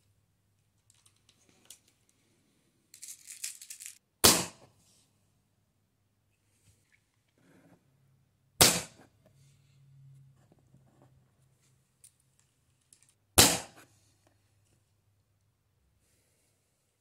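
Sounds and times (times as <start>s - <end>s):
small handling clicks: 0.8s - 2.2s
air pistol shots: 4.2s - 4.7s, 8.6s - 9.0s, 13.4s - 13.8s.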